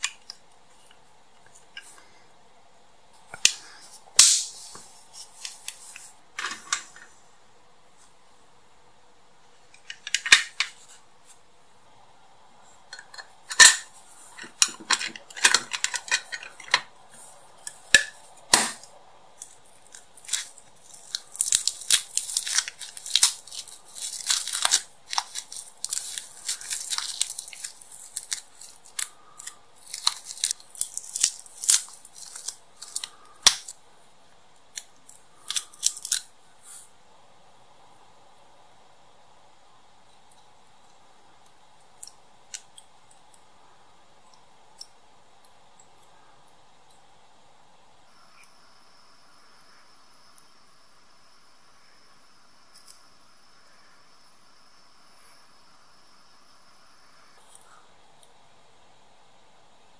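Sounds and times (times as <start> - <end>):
plastic parts clicking and tapping: 9.7 - 10.8, 12.9 - 16.9.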